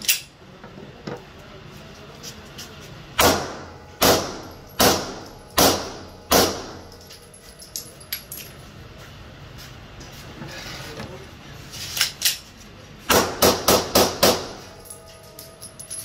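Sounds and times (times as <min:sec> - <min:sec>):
pistol shots with echo: 0:03.2 - 0:06.8, 0:13.1 - 0:14.6.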